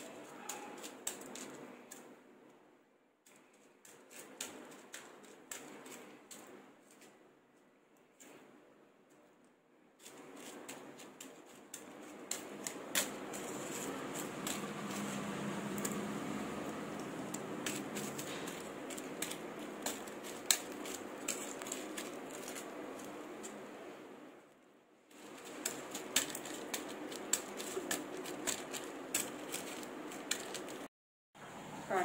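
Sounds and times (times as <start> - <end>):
sugar granules scraping and rustling: 0.0 - 2.1, 10.0 - 24.3, 25.1 - 30.9
low background hum: 0.0 - 32.0.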